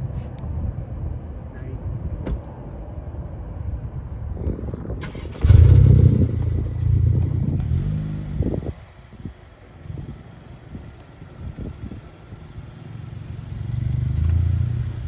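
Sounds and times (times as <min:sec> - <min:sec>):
car engine revving: 0:05.0 - 0:15.0.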